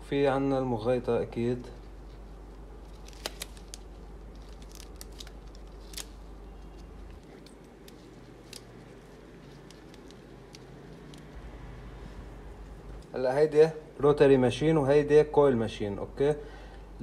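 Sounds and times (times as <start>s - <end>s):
low steady hum: 0.0s - 17.0s
rubber band stretching: 2.0s - 11.3s.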